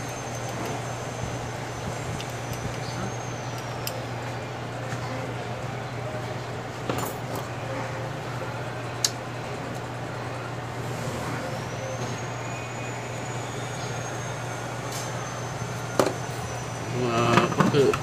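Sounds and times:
faint high whistle: 0:00.0 - 0:04.0, 0:11.2 - 0:17.6
hot air station blowing: 0:10.5 - 0:18.0.

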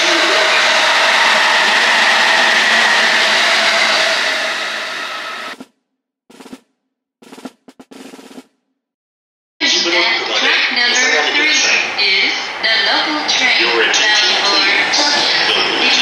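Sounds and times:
train running: 0:00.0 - 0:05.6, 0:10.2 - 0:16.0.

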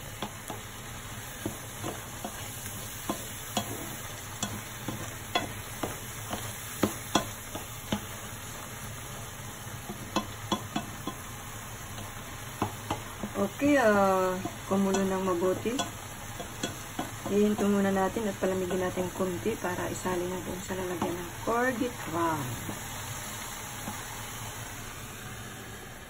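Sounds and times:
mixture sizzling and bubbling: 0:00.0 - 0:26.0
spatula knocking against pan: 0:03.0 - 0:08.1, 0:09.9 - 0:11.3, 0:12.0 - 0:13.4, 0:14.3 - 0:19.2.

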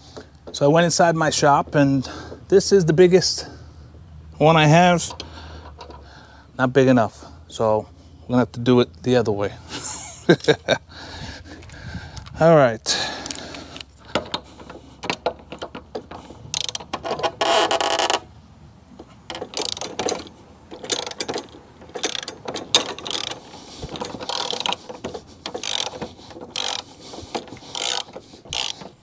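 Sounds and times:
socket ratchet clicking: 0:16.5 - 0:18.2, 0:19.3 - 0:29.0.

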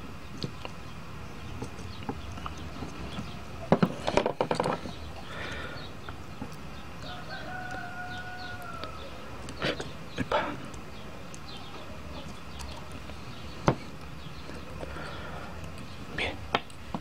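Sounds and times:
hand tools clattering on wood: 0:03.7 - 0:05.0.

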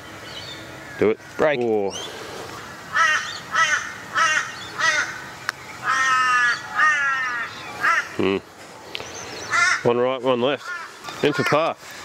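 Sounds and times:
crow cawing: 0:02.9 - 0:08.3, 0:09.4 - 0:10.0, 0:10.6 - 0:11.8.

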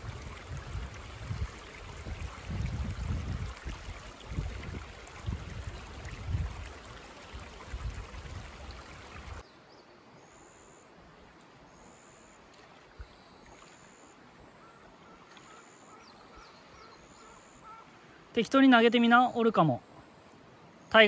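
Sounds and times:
river water running over stones: 0:00.0 - 0:09.5.

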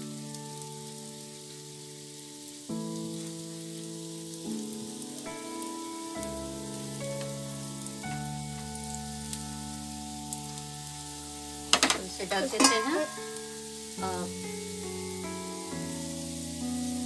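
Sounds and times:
background music of sustained chords: 0:00.0 - 0:17.0
hot oil sizzling in a pan: 0:00.0 - 0:17.0.

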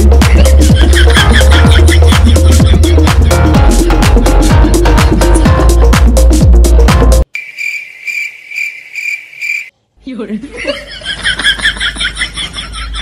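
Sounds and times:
electronic background music: 0:00.0 - 0:07.3
cricket chirping: 0:07.3 - 0:09.7
rapid high chirping: 0:07.3 - 0:09.7.

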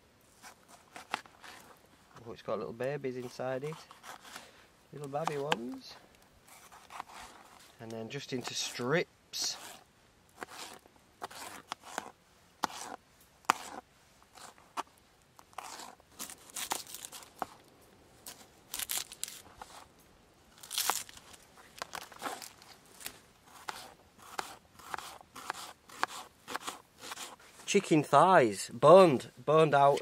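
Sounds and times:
knife cutting vegetables: 0:10.4 - 0:13.8, 0:15.5 - 0:17.5, 0:23.5 - 0:27.4.

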